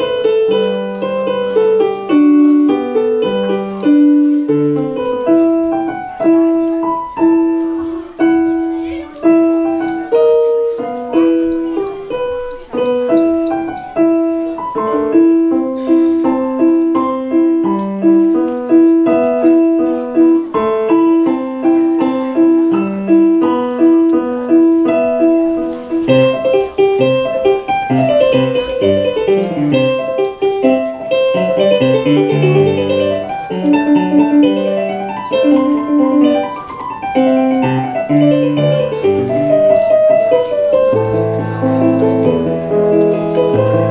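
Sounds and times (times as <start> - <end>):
electronic keyboard piano melody: 0.0 - 43.9.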